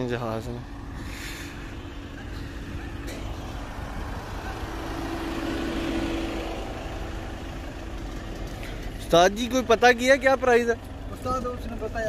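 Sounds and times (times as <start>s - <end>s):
vehicle engine rumbling: 0.0s - 12.0s.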